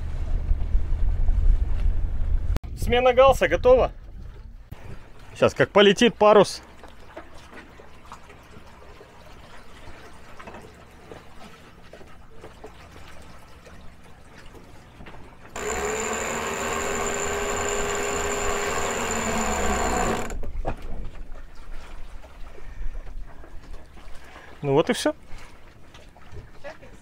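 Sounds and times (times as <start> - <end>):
water noise: 2.9 - 27.0
electric winch motor whining: 15.5 - 20.4.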